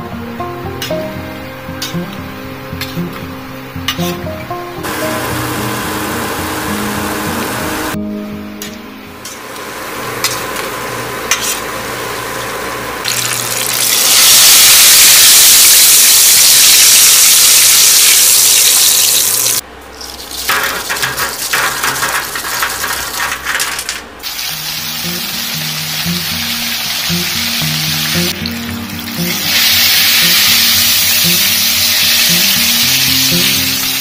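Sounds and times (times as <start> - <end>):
mushrooms sizzling in hot oil: 13.0 - 19.6, 24.2 - 34.0.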